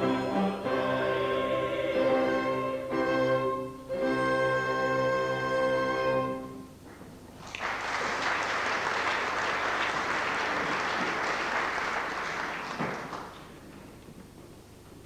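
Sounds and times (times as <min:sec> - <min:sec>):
orchestra chord: 0:00.0 - 0:06.7
audience applauding: 0:07.4 - 0:13.9.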